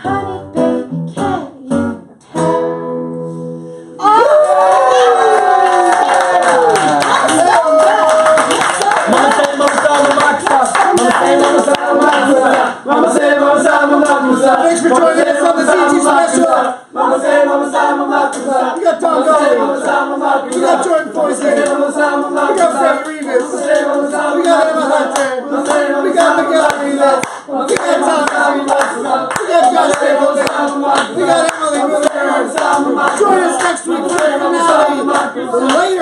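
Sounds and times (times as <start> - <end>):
hand claps: 5.3 - 12.7, 20.5 - 20.9, 21.5 - 36.0
group singing: 9.1 - 36.0.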